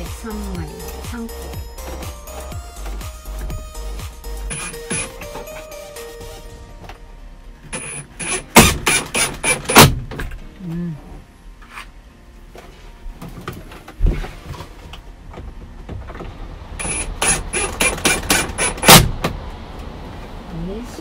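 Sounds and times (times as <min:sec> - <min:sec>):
cordless drill short bursts: 0:07.8 - 0:09.9, 0:16.8 - 0:19.0.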